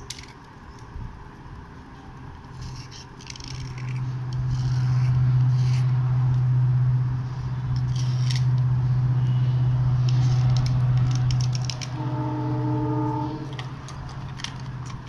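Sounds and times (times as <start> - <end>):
steady low hum: 1.0 - 15.0
blade scraping slate pencil: 2.5 - 5.9.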